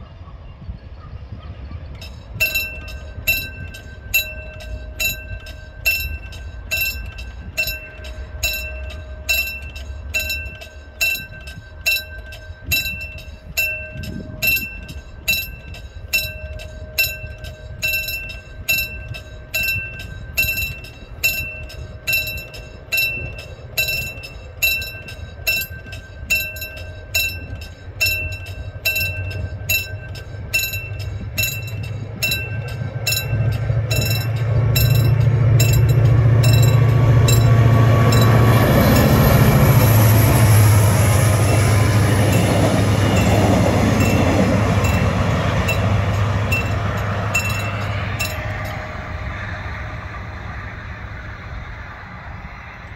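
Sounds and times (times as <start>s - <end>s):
train rumble: 0.0s - 52.9s
level crossing bell ringing: 2.0s - 49.2s.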